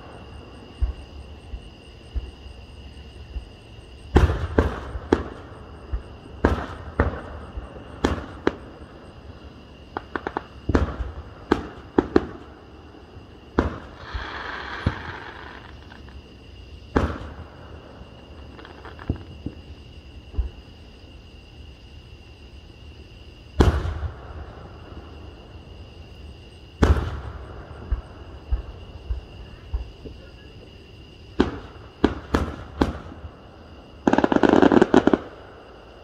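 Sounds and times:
fireworks bursting: 4.1s - 12.7s, 13.4s - 20.6s, 23.6s - 24.7s, 26.8s - 30.4s, 31.3s - 35.7s
fireworks hissing: 13.5s - 20.6s.

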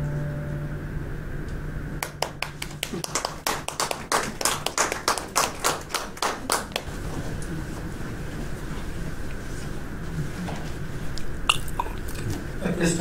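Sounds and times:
held music chord: 0.0s - 1.3s
audience applauding: 2.0s - 7.2s.

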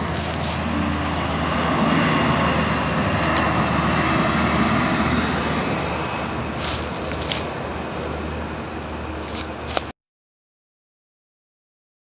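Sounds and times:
distant vehicle engine drone: 0.0s - 9.9s.

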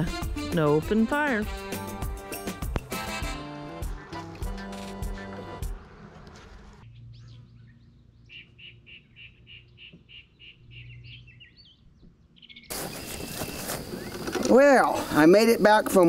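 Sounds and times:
songbird singing: 3.8s - 16.0s.

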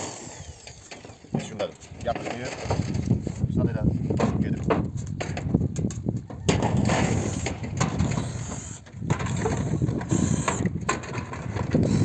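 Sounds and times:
metal sheets rattling underfoot: 0.7s - 12.0s
sheet metal scraping: 6.3s - 12.0s.

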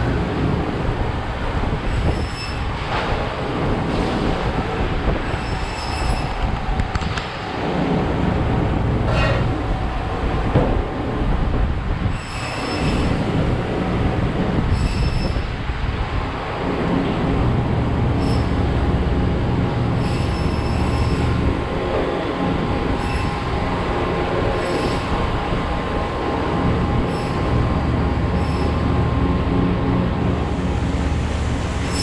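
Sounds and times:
steady background noise: 0.0s - 32.0s
short high-pitched squeals: 1.9s - 2.7s, 5.3s - 6.5s, 12.1s - 13.2s, 14.7s - 15.5s, 18.2s - 18.6s, 20.0s - 21.4s, 23.0s - 23.5s, 27.1s - 27.5s, 28.4s - 28.8s.

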